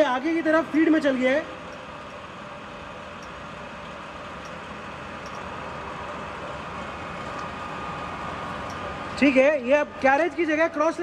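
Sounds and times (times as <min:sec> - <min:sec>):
light ticks: 0:03.2 - 0:04.6, 0:05.2 - 0:05.5, 0:08.6 - 0:08.8.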